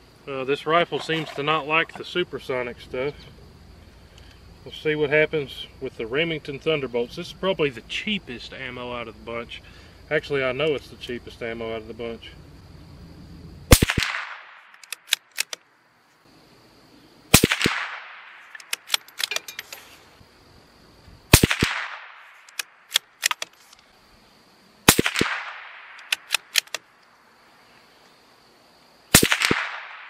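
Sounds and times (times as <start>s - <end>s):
rifle shots echoing: 13.7s - 15.2s, 17.3s - 19.2s, 21.3s - 23.0s, 24.9s - 26.8s, 29.1s - 30.0s
rifle bolt metallic clicks: 14.7s - 15.6s, 18.5s - 19.8s, 22.4s - 23.8s, 25.1s - 26.8s.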